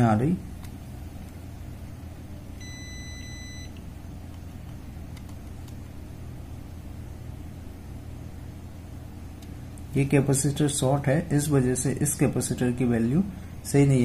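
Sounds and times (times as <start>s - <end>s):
steady low hum: 0.0s - 14.0s
electronic beep: 2.6s - 3.7s.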